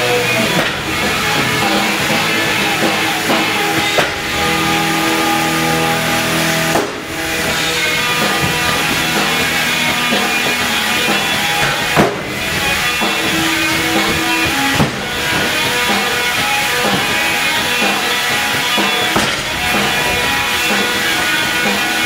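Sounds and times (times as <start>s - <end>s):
rock music with guitar and drums: 0.0s - 22.0s.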